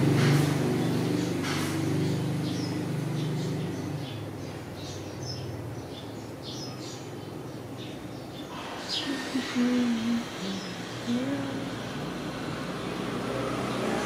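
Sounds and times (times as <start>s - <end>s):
small birds chirping: 0.0s - 13.1s
low engine hum: 9.1s - 14.0s.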